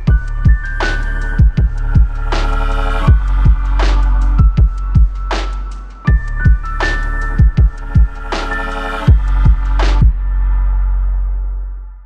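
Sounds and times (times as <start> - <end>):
kick drum beats: 0.0 - 0.8, 1.4 - 2.2, 3.1 - 5.5, 6.1 - 6.8, 7.4 - 8.2, 9.1 - 10.2
deep steady bass: 0.0 - 12.0.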